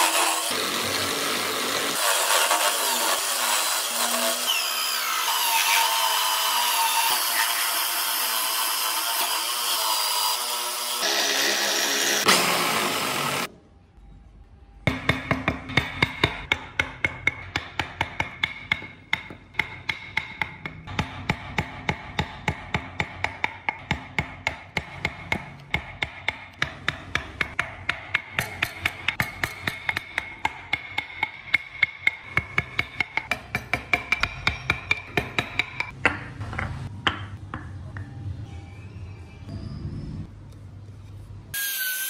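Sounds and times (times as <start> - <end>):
mallet tapping chisel into wood: 14.9 - 38.1.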